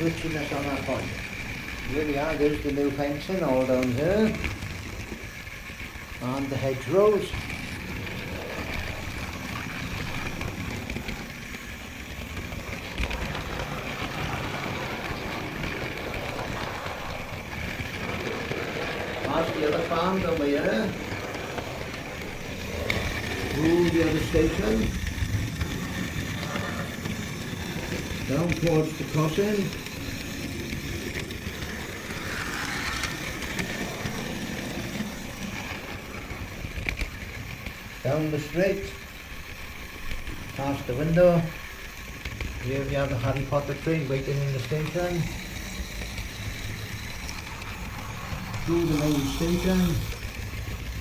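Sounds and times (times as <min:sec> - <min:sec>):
model train motor whirr: 0:00.0 - 0:51.0
wheels rumbling on rails: 0:00.0 - 0:51.0.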